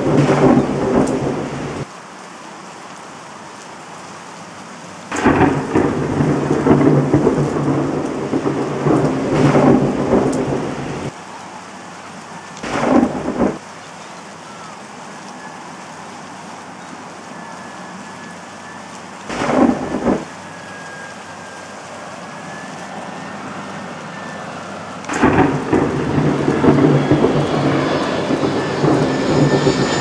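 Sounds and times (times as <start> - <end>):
thunder rumbling: 0.0 - 1.9, 5.1 - 11.2, 12.4 - 13.6, 17.3 - 30.0
steady rain hiss: 0.0 - 30.0.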